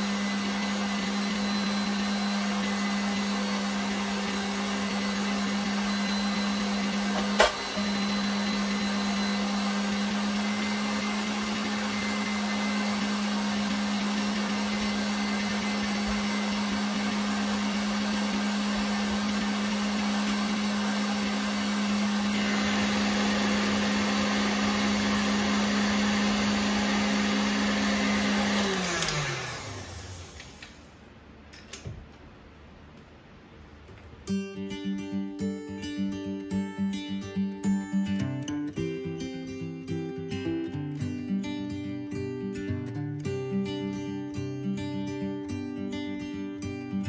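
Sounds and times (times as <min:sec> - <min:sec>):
stand mixer motor whirring: 0:00.0 - 0:30.8.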